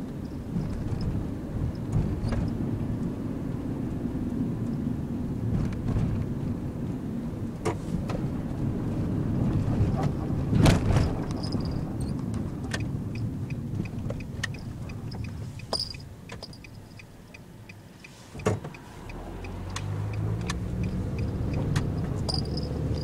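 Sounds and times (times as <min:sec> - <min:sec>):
engine and road noise in van: 0:00.0 - 0:23.0.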